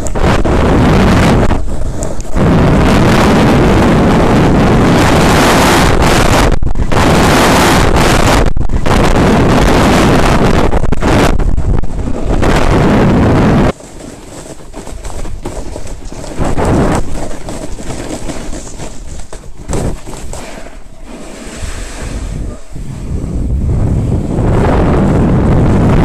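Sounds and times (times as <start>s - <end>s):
wind rushing over microphone: 0.0s - 26.0s
skis on snow: 12.0s - 24.8s.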